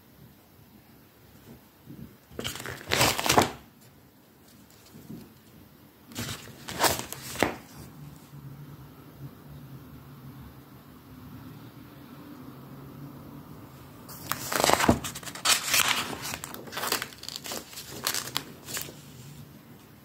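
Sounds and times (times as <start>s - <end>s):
paper pages turning: 2.3s - 3.6s, 6.1s - 7.9s, 14.1s - 19.4s.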